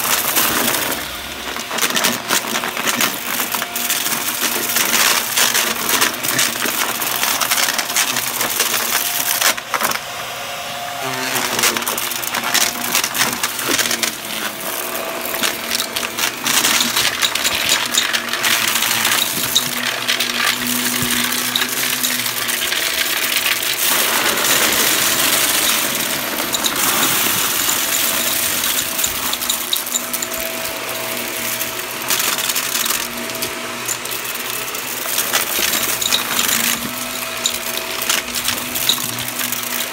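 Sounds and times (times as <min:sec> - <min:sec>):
debris crackling in vacuum nozzle: 0:00.0 - 0:10.2, 0:10.9 - 0:39.9
vacuum motor humming: 0:00.0 - 0:39.9.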